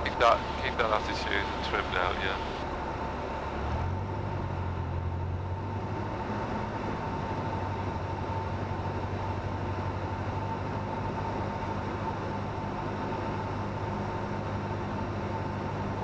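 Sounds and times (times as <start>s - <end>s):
faint steady whine: 0.0s - 5.7s
aircraft engine and propeller droning: 0.0s - 16.0s.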